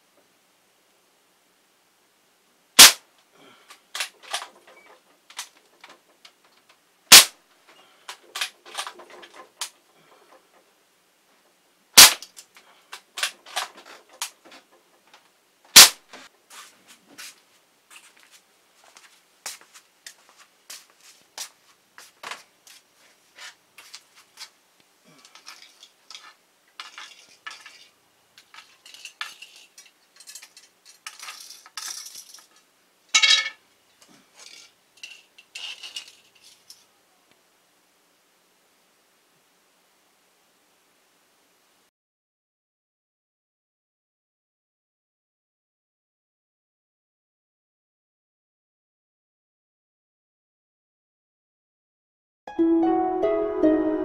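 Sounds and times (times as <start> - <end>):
air rifle shots: 2.8 - 3.0, 7.1 - 7.4, 12.0 - 12.2, 15.7 - 16.0
pellets striking toy cars: 2.8 - 3.0, 7.1 - 7.4, 12.0 - 12.4, 25.4 - 32.5, 33.2 - 33.6
rattle of small metal bits: 25.2 - 33.6, 34.4 - 36.9
metal pieces clinking on concrete: 25.3 - 32.6, 33.2 - 33.6, 34.4 - 36.8.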